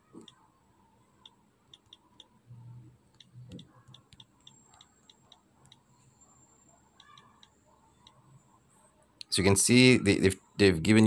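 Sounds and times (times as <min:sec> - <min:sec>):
touchscreen keyboard typing clicks: 0:01.2 - 0:02.4, 0:03.1 - 0:05.9, 0:07.0 - 0:08.2.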